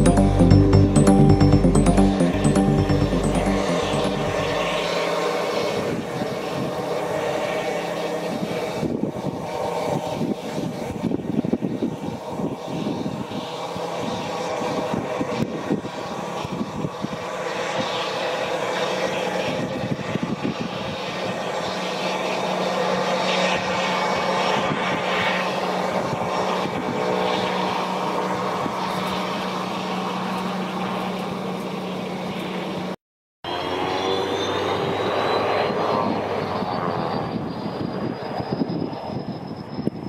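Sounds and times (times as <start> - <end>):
high engine whine rising: 0.0 - 10.8
jet engines whining drone: 0.0 - 40.0.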